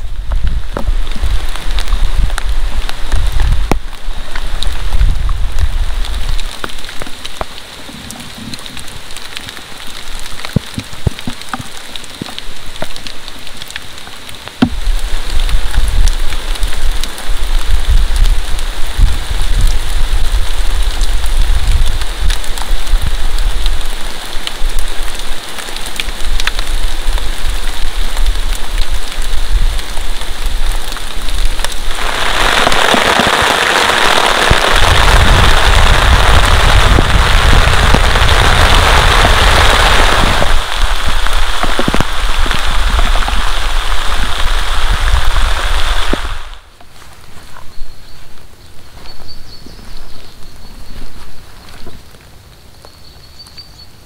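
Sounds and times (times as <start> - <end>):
rain on plastic tarp: 0.0 - 54.0
steady rain falling: 0.0 - 54.0
strong low rumble: 34.5 - 46.6.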